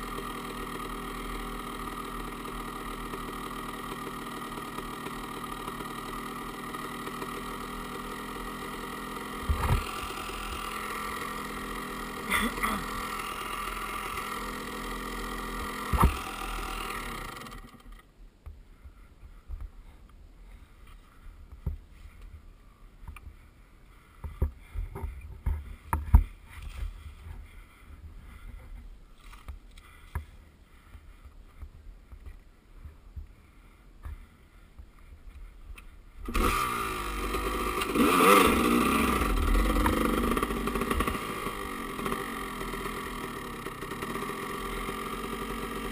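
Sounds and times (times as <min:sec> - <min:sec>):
motorcycle engine idling: 0:00.0 - 0:45.9.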